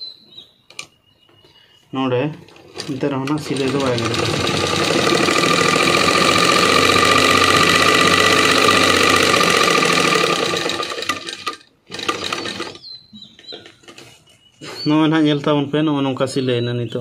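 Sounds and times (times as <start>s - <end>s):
sewing machine stitching: 2.5s - 12.8s.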